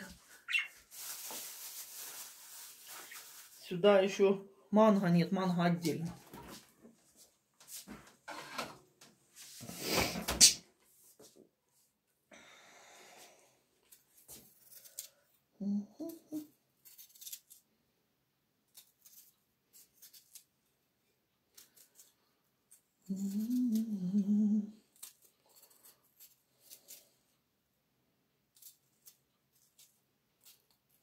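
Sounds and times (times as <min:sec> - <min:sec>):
woman humming: 0:15.6 - 0:16.5, 0:23.1 - 0:24.8.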